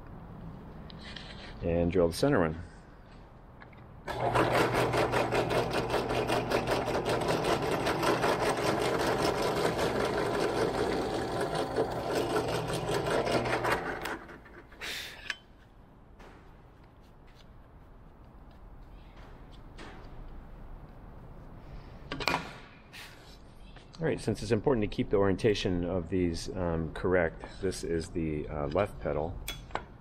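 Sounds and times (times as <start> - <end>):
drill clatter: 4.1 - 14.8
drill press motor hum: 4.1 - 14.8.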